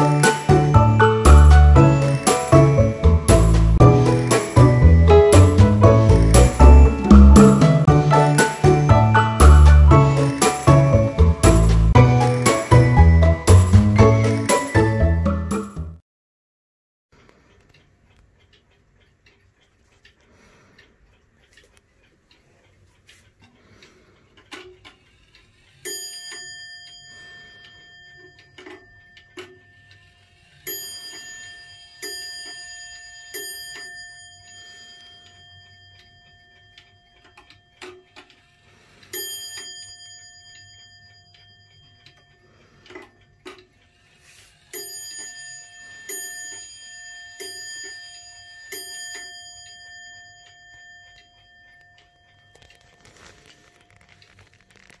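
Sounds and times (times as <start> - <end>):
clock bell striking: 0.0 - 15.3, 25.8 - 43.4, 44.6 - 54.1
clock ticking and clicks: 0.0 - 15.7, 17.1 - 55.0.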